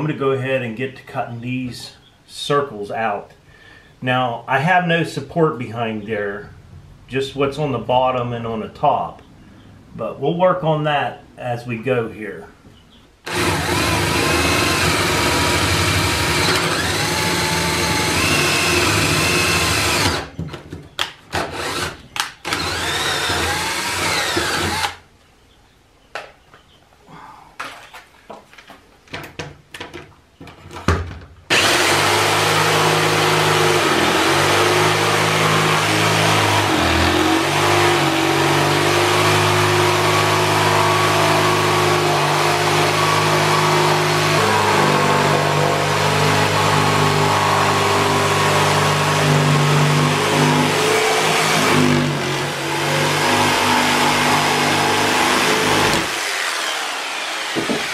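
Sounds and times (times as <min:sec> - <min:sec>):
cordless drill boring: 0:13.3 - 0:20.3, 0:21.4 - 0:25.0, 0:31.5 - 0:57.9
jigsaw cutting wood: 0:13.3 - 0:20.4, 0:21.3 - 0:25.0, 0:31.5 - 0:57.9
knocks on wood: 0:57.6 - 0:57.9.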